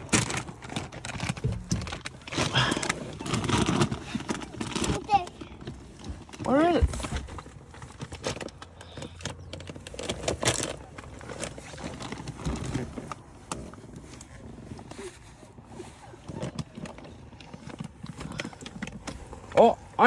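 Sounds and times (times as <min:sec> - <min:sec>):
items clicking and rustling: 0:00.0 - 0:20.0.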